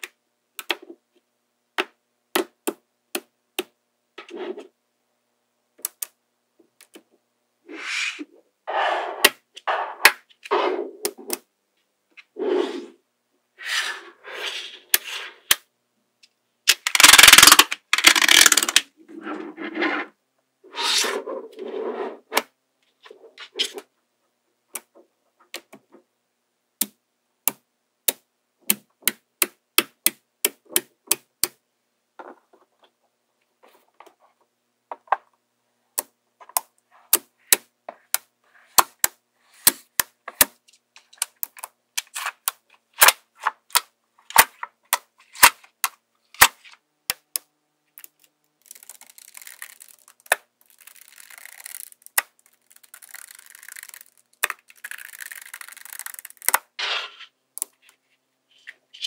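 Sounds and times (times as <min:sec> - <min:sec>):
magnetic balls clicking: 0:16.7 - 0:18.9, 0:47.1 - 0:56.7.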